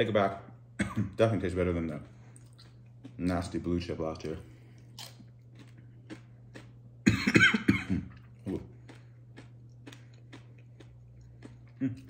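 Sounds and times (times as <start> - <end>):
man coughing: 0.8 - 1.3, 7.0 - 8.6.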